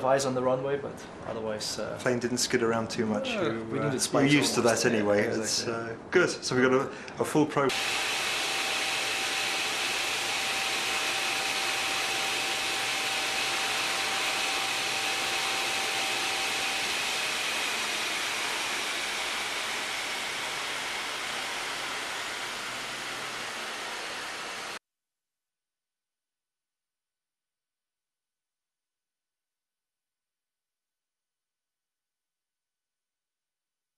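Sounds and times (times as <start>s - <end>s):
rushing blower noise: 7.7s - 24.8s.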